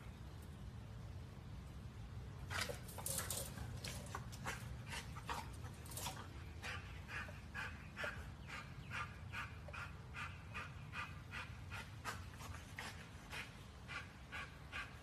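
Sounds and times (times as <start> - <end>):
dog panting: 2.6 - 15.0.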